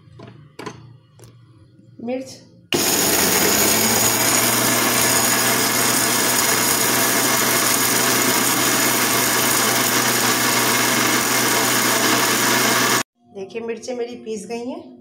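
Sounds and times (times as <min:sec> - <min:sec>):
mixer grinder whirring: 0:02.7 - 0:13.1.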